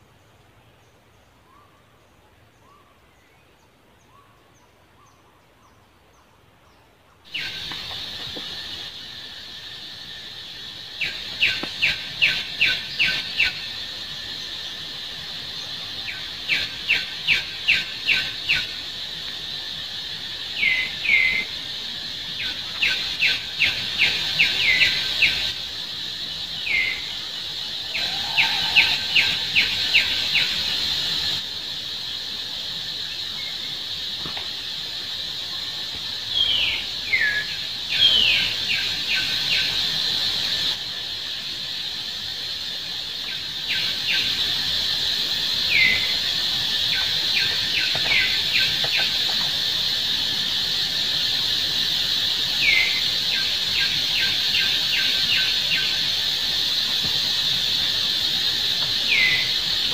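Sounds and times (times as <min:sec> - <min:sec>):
falling bird calls: 0:06.7 - 0:25.7, 0:26.3 - 0:31.4, 0:35.4 - 0:40.8
high insect drone: 0:07.2 - 0:59.9.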